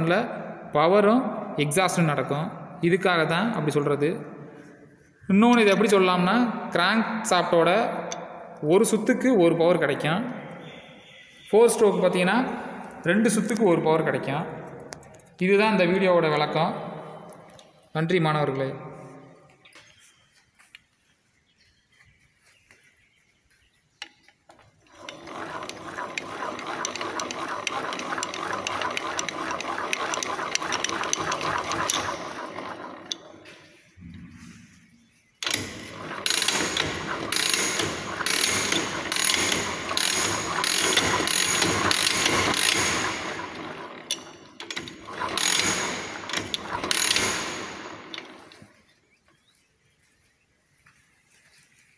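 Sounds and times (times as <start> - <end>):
engine gears clattering and clicking: 24.8 - 33.5, 35.4 - 48.8.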